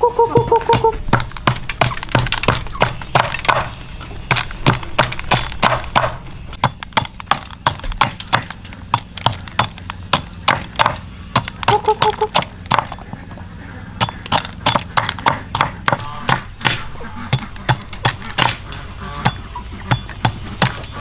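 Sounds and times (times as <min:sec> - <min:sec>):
rapid knocks and thuds: 0:00.4 - 0:13.2.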